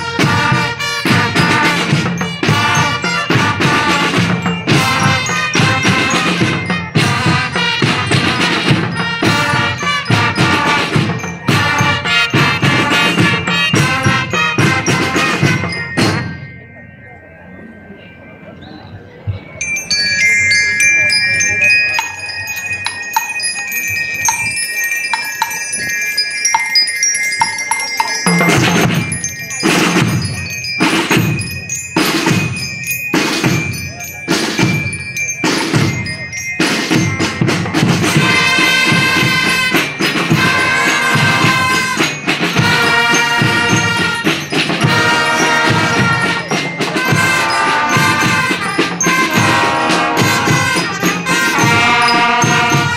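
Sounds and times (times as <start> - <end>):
steady drum strokes: 0.0 - 16.5, 27.4 - 52.9
marching band pulsing chords: 0.0 - 16.7, 19.3 - 52.9
bell lyres ringing melody: 0.0 - 52.9.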